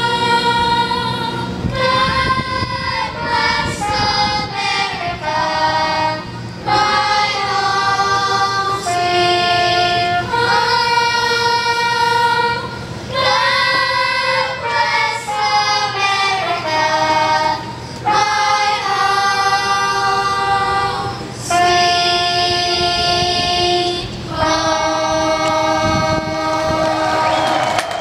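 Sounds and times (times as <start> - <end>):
children's choir singing: 0.0 - 28.0
singers breathing: 6.2 - 6.7, 17.6 - 18.1.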